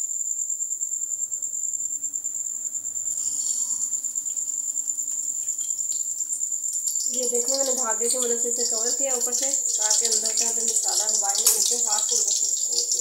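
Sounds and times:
food sizzling in oil: 0:02.8 - 0:13.0.

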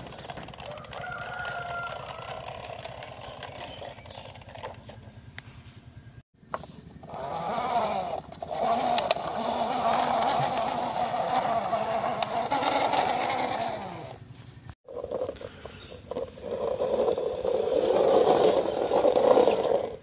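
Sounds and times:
toy wheels rolling on concrete: 0:00.0 - 0:05.2, 0:06.6 - 0:20.0.

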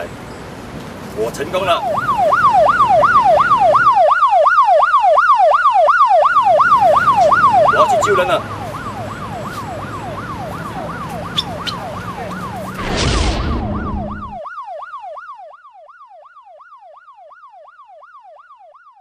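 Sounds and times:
outdoor background noise: 0:00.0 - 0:19.0
siren yelping: 0:01.6 - 0:19.0
loud whoosh: 0:12.8 - 0:14.4.

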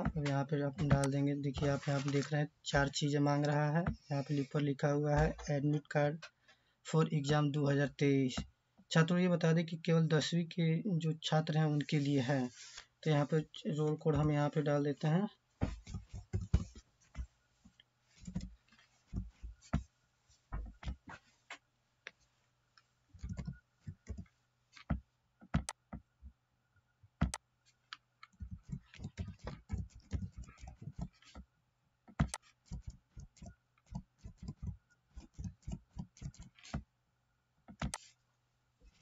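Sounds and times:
keyboard typing: 0:23.2 - 0:25.8, 0:32.2 - 0:36.8.

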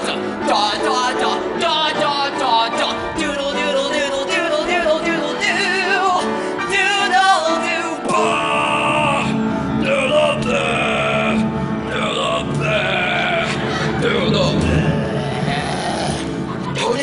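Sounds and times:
backing music: 0:00.0 - 0:17.0
man singing wordlessly: 0:00.0 - 0:17.0.

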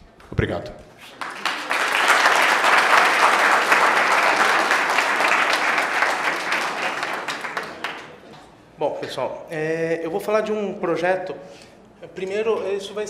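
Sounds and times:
audience applauding: 0:01.1 - 0:08.3.

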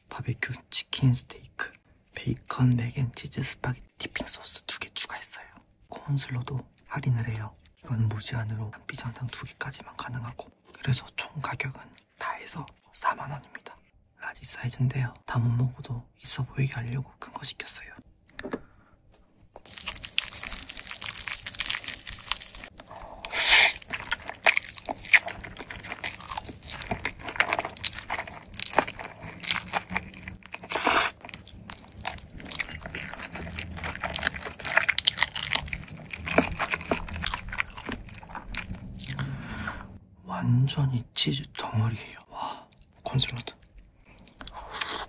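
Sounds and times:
noodles slurped and chewed: 0:19.6 - 0:39.3, 0:43.6 - 0:45.0
wet mouth clicks: 0:29.8 - 0:31.7.

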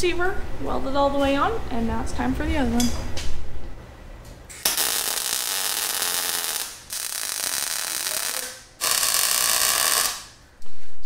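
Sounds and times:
welding arc crackling hiss: 0:04.6 - 0:10.4.

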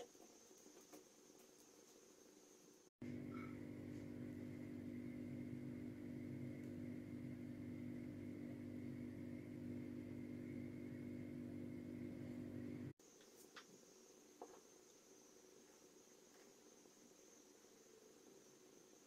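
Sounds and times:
low mechanical hum: 0:00.0 - 0:19.0
thin high whine: 0:02.6 - 0:05.5.

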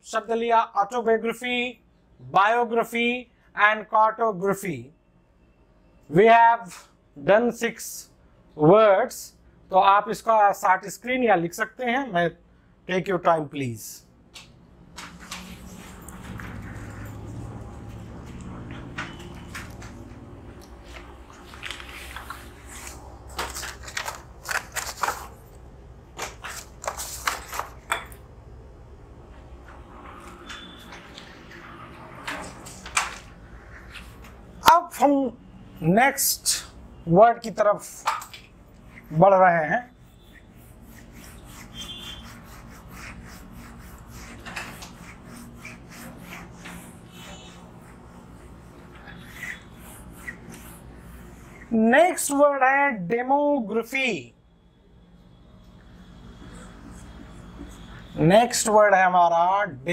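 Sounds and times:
low room hum: 0:00.0 - 0:59.9
duster rubbing on whiteboard: 0:40.1 - 0:51.8.

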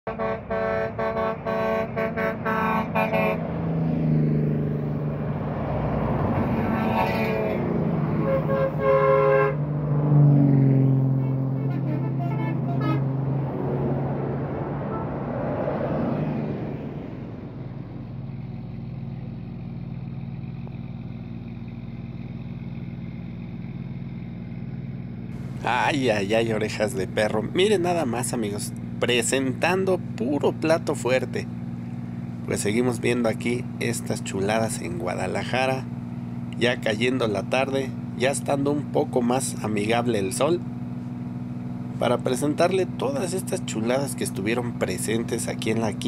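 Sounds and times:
vehicle horn short blasts: 0:00.1 - 0:03.4, 0:08.1 - 0:09.6, 0:11.2 - 0:13.1
bus driving past: 0:00.1 - 0:38.3
heavy truck passing: 0:00.1 - 0:46.0
bus engine idling: 0:04.5 - 0:10.0, 0:11.0 - 0:15.4, 0:16.6 - 0:46.0.

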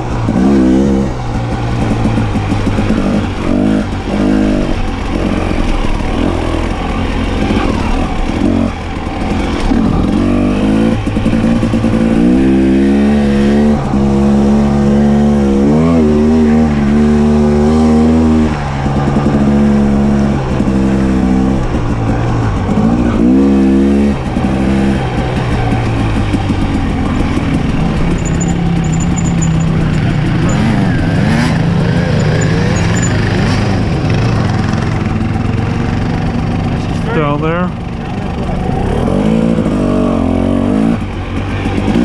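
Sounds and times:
off-road vehicle engine revving: 0:00.0 - 0:42.0.

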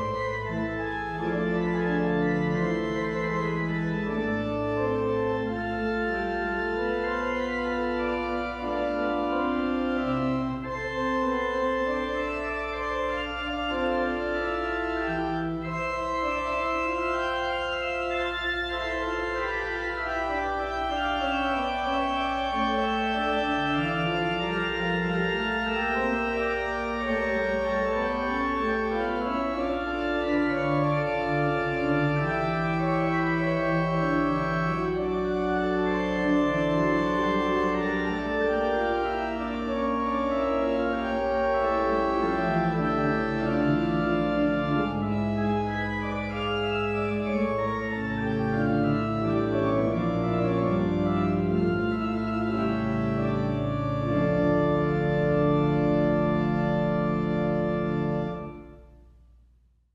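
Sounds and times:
organ music: 0:00.0 - 0:59.1.

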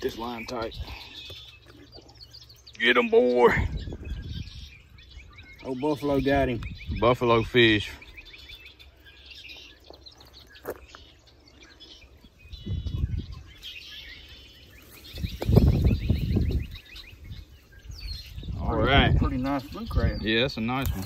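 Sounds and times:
small birds chirping: 0:00.0 - 0:21.0
wind rumbling on microphone: 0:03.5 - 0:08.2, 0:12.0 - 0:13.8, 0:14.8 - 0:21.0.

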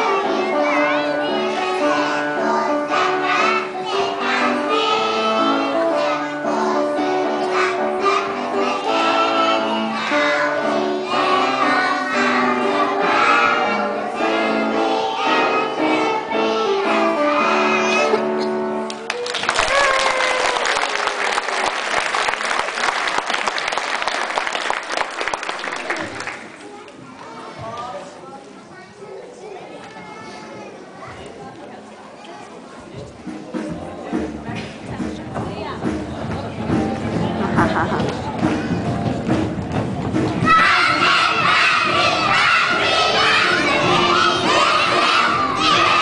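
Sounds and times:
children singing: 0:00.0 - 0:18.4, 0:40.4 - 0:46.0
musical accompaniment: 0:00.0 - 0:19.6, 0:33.1 - 0:46.0
audience applauding: 0:18.9 - 0:26.6.

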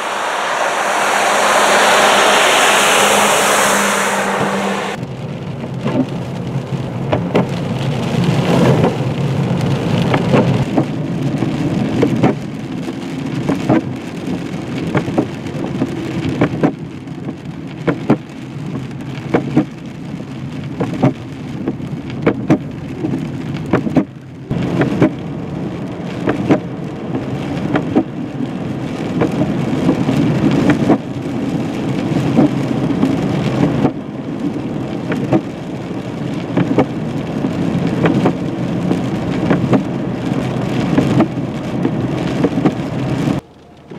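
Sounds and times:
road and tyre noise: 0:00.0 - 0:43.9.

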